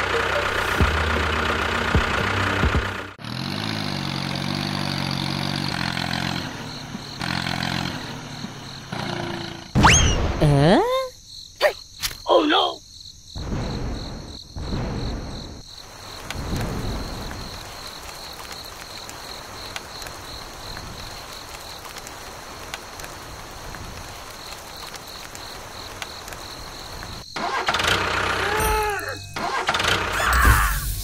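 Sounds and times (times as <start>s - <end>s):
crickets chirping: 3.4s - 31.0s
heavy rain falling: 15.8s - 27.2s.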